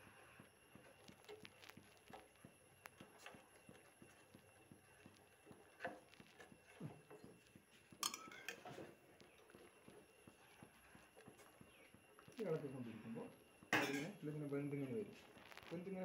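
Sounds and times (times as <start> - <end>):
steel ladle clinking in pot: 8.0 - 8.7.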